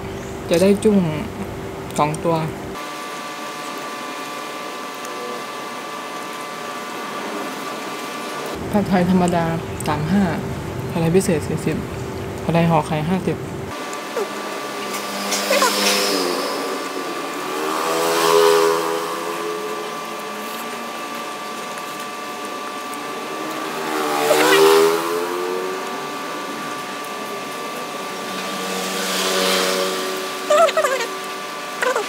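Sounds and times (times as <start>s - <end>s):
steady motor hum: 0.0s - 32.0s
vehicles passing: 8.3s - 21.6s, 22.2s - 32.0s.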